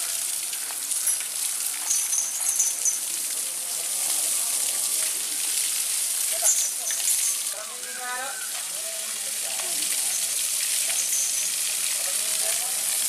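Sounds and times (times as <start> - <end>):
hose water jet spraying: 0.0 - 13.0.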